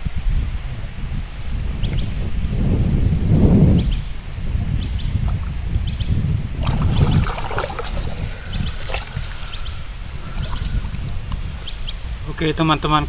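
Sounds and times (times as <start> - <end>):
small knocks and splashes: 6.6 - 9.5
muddy water sloshing: 6.6 - 11.2.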